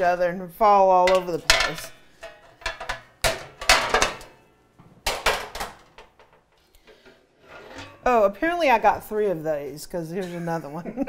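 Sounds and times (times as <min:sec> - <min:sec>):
metal pans clanging: 0:01.0 - 0:09.5
metal pans sliding: 0:01.0 - 0:09.5.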